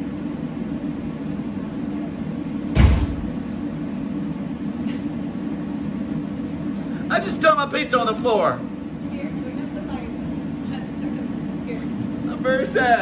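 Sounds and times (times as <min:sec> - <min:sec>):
steady background hum: 0:00.0 - 0:13.0
heavy thump on concrete floor: 0:02.8 - 0:03.4.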